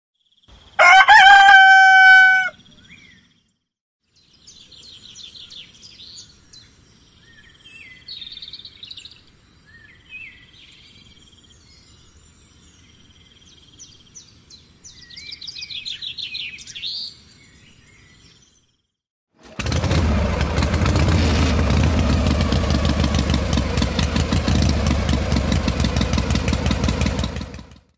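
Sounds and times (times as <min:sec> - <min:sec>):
rooster crowing: 0:00.8 - 0:02.7
small birds chirping: 0:02.2 - 0:19.0.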